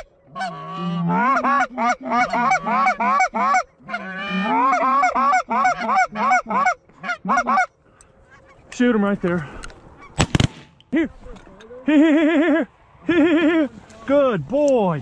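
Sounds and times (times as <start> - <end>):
goose call honks and clucks: 0.0 - 8.6.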